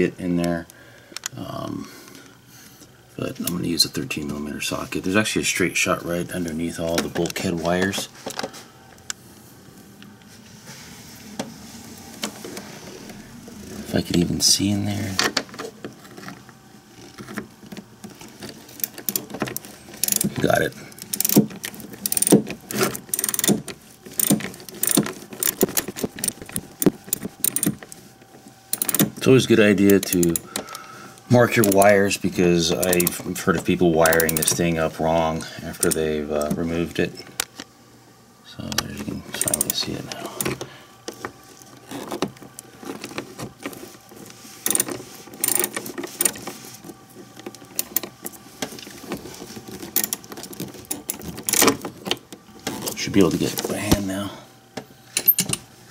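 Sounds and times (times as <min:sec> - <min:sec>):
socket ratchet clicking: 0:20.0 - 0:20.3, 0:21.0 - 0:27.9, 0:28.7 - 0:29.1, 0:32.8 - 0:33.2, 0:34.0 - 0:34.6
socket wrench clicking: 0:22.0 - 0:22.4, 0:28.7 - 0:29.1, 0:34.0 - 0:34.5.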